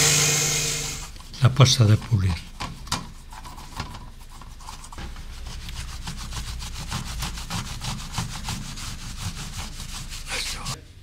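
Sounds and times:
rubbing strokes on silver plate: 2.5 - 10.8.

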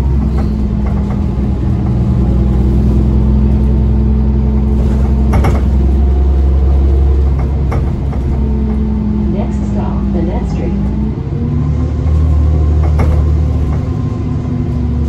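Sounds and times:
bus drivetrain droning: 0.0 - 15.0
sharp knocks: 4.8 - 6.0, 12.8 - 14.0.

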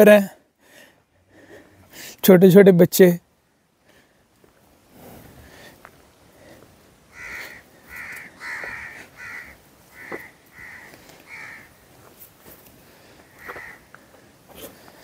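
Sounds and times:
bird calling: 7.1 - 11.8, 13.1 - 14.9.

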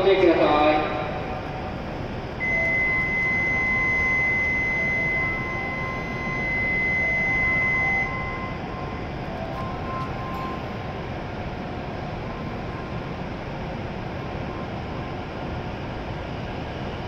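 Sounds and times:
station hum: 0.0 - 17.0
faint intermittent tones: 1.2 - 15.8
high electronic warning beep: 2.4 - 15.2.

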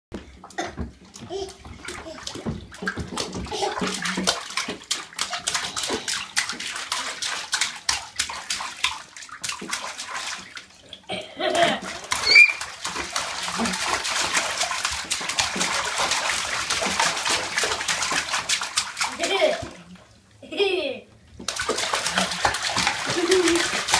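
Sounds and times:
child splashing bathwater: 0.2 - 20.8, 21.4 - 23.9
child squealing: 12.2 - 12.6.

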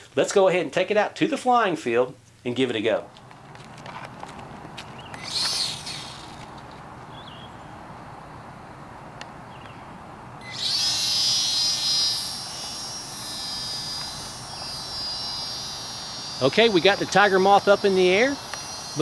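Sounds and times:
small electric motor whine: 3.1 - 19.0.

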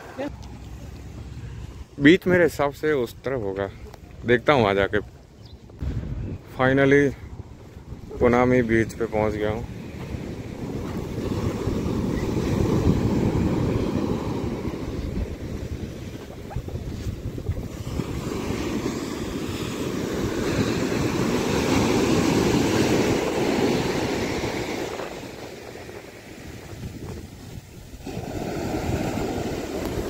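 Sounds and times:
wind buffeting microphone: 5.0 - 30.0
surf washing up beach: 7.6 - 30.0.

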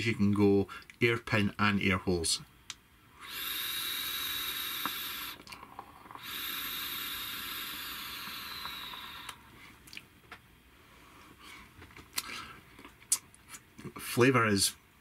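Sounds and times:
air hissing through atomizer: 3.2 - 9.6.

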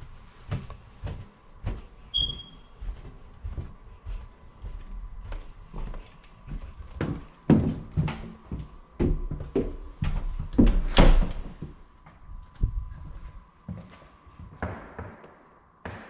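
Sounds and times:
footsteps: 0.0 - 16.0
interior door knocks and thumps: 10.4 - 11.8.

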